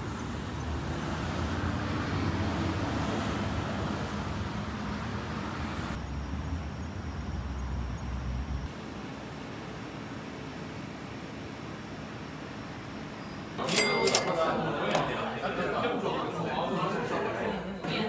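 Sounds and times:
low rumble of traffic: 0.0s - 17.4s.

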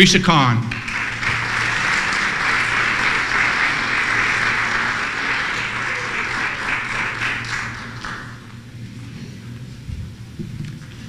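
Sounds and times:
audience applauding: 0.7s - 8.6s.

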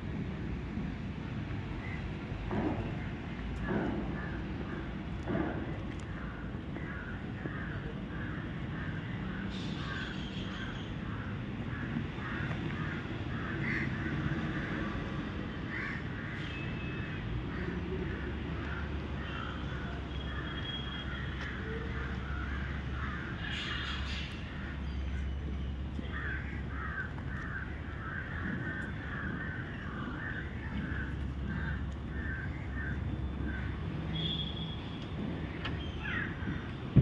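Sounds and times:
crows cawing: 6.2s - 15.0s, 15.7s - 16.6s, 17.5s - 24.0s, 26.1s - 33.8s.

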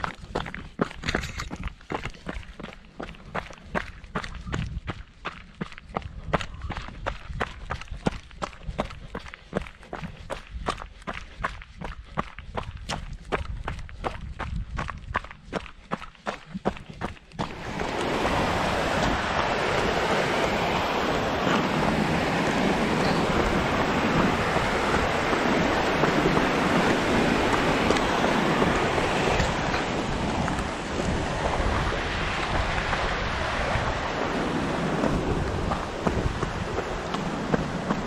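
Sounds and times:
stream rushing over rocks: 17.4s - 38.0s.

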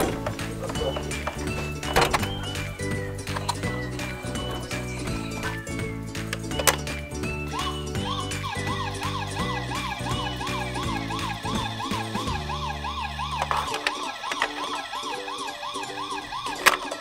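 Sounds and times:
background music: 0.0s - 17.0s
siren yelping: 7.5s - 17.0s.

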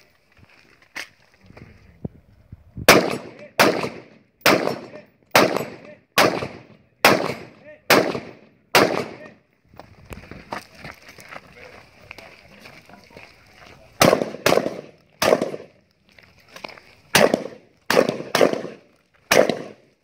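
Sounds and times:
rifle shots echoing: 2.9s - 9.4s, 14.0s - 15.8s, 17.1s - 19.9s.

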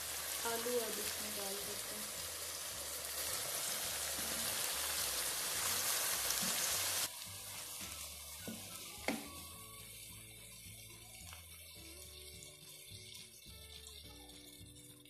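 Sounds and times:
vegetables sizzling in hot oil: 0.0s - 14.1s.

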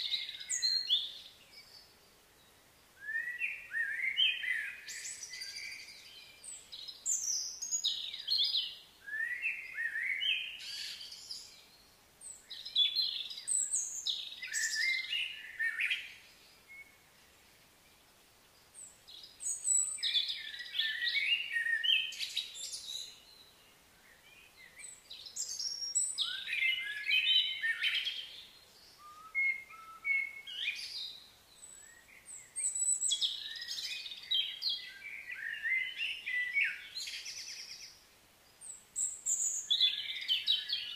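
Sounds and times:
birds chirping and singing: 12.3s - 17.0s, 19.1s - 23.5s, 24.1s - 38.0s, 38.6s - 40.9s.

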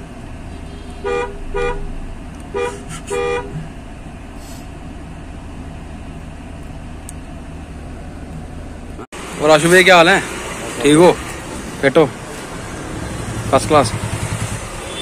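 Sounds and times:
engine rumbling: 0.0s - 15.0s
car horn tooting: 0.6s - 1.9s, 2.5s - 3.6s, 14.7s - 15.0s.

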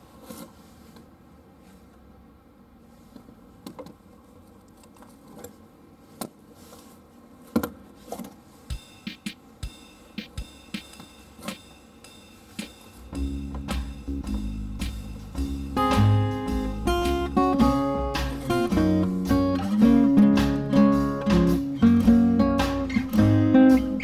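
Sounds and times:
acoustic guitar music: 12.4s - 24.0s.

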